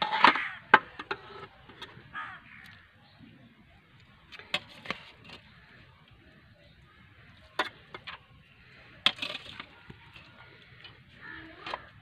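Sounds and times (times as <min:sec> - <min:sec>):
metal utensils clinking against pot: 0:09.0 - 0:12.0.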